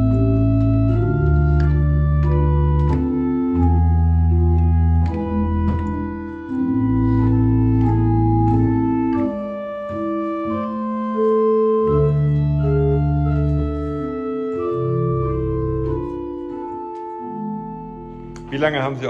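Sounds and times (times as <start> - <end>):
pipe organ playing slow chords: 0.0 - 19.0.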